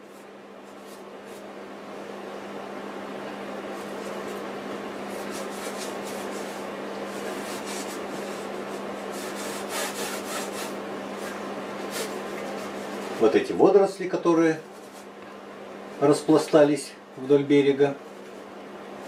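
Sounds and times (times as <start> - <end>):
steady low hum: 0.0 - 19.0
bristle brush scrubbing canvas: 5.0 - 13.4.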